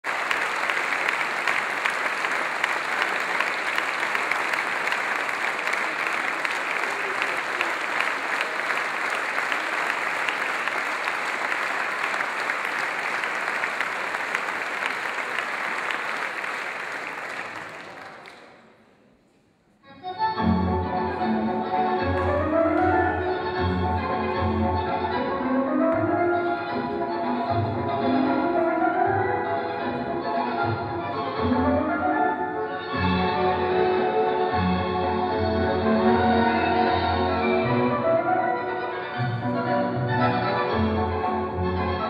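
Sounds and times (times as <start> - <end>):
audience applauding: 0.0 - 18.6.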